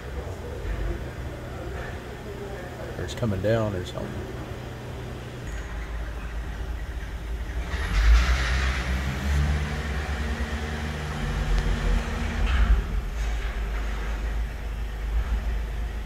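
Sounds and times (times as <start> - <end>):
diesel engine idling: 0.0 - 16.0
car driving past: 7.6 - 13.4.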